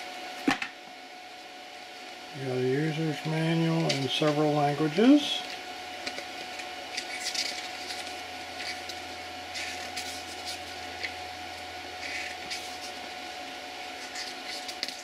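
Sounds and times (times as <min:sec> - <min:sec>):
steady background hum: 0:00.0 - 0:15.0
paper pages rustling: 0:06.0 - 0:11.2.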